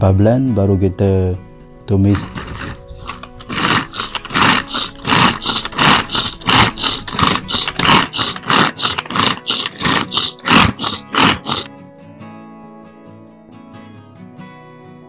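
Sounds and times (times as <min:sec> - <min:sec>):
electric food chopper pulsing: 0:02.2 - 0:11.7.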